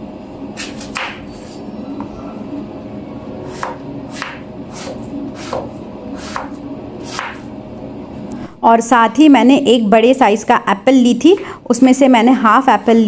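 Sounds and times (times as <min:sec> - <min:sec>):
knife chopping on cutting board: 0:00.6 - 0:01.6, 0:03.5 - 0:07.5.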